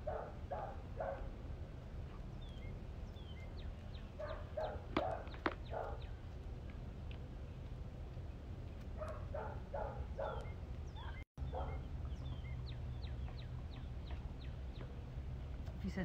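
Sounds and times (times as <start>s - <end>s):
faint high bird chirps: 10.1s - 14.9s.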